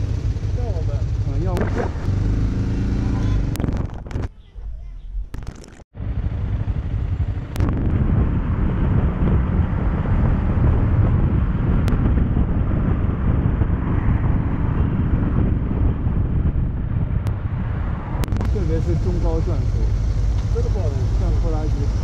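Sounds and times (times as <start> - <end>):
motorcycle engine running: 0.0 - 4.0, 6.0 - 17.7, 18.3 - 22.0
wind buffeting microphone: 6.1 - 22.0.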